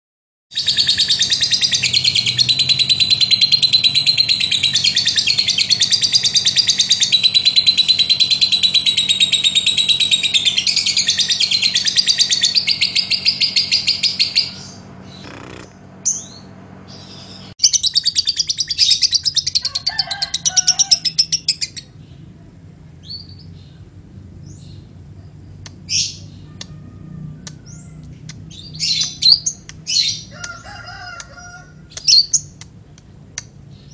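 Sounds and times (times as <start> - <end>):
lovebird chattering: 0.6 - 16.4, 27.4 - 32.7.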